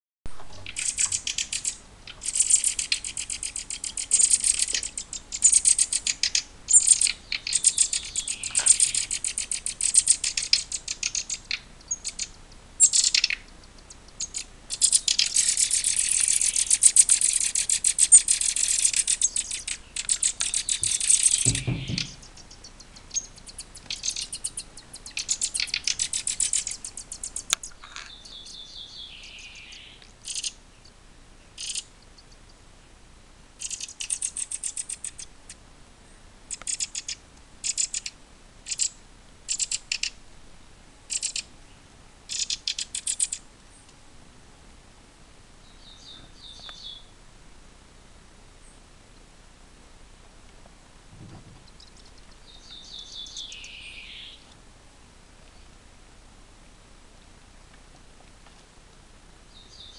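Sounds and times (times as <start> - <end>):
nestling birds chirping: 0.3 - 32.6, 33.6 - 35.6, 36.5 - 40.2, 41.0 - 44.0, 45.6 - 47.2, 51.4 - 54.6, 59.4 - 59.9
low thump: 20.8 - 22.3, 51.1 - 51.7.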